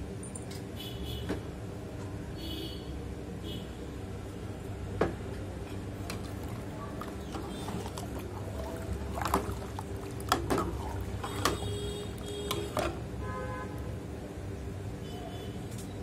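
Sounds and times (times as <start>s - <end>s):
steady low hum: 1.4s - 16.0s
liquid sloshing in pot: 5.9s - 13.2s.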